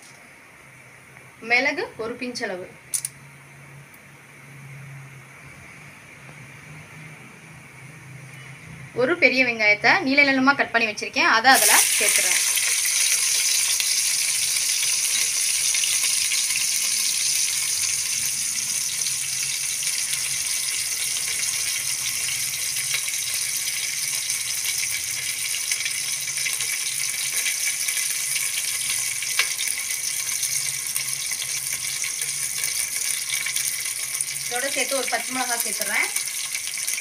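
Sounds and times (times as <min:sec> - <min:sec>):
onions sizzling in oil: 0:11.4 - 0:37.0.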